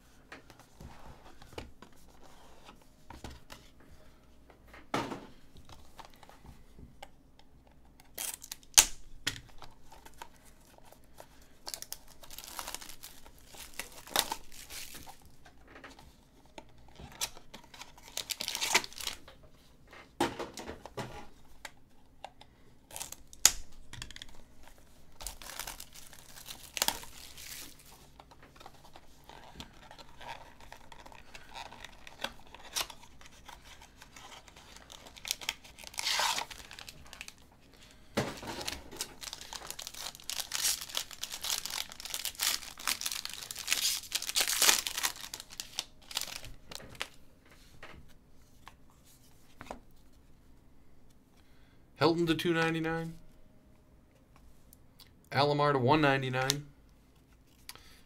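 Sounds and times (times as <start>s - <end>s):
foil pack tearing and crinkling: 11.7s - 15.2s, 17.2s - 19.2s, 25.2s - 28.0s, 29.2s - 37.4s, 38.4s - 47.1s.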